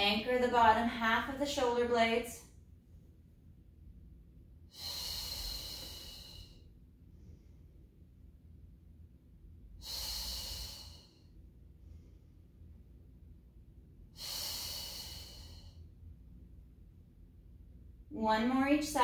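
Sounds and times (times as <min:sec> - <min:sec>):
woman breathing heavily: 0:04.7 - 0:08.0, 0:09.8 - 0:12.7, 0:14.1 - 0:16.0.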